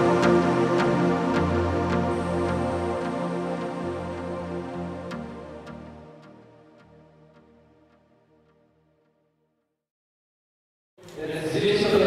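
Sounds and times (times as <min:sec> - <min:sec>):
background music with soft beat: 0:00.0 - 0:08.1.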